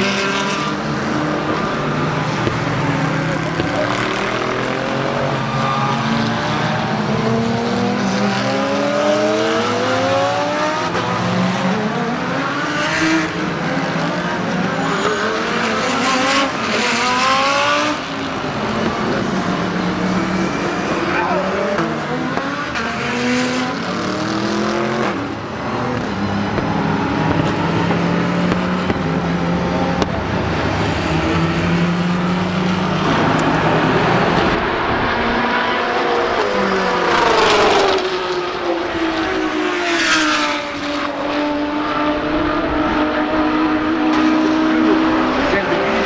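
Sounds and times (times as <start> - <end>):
race cars passing at speed: 0.0 - 46.0.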